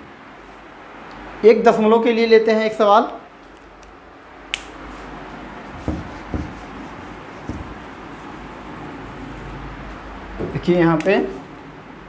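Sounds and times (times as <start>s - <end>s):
sharp click: 4.5s - 4.8s
duster scrubbing whiteboard: 4.9s - 10.2s
dull knocks against board: 5.8s - 6.6s.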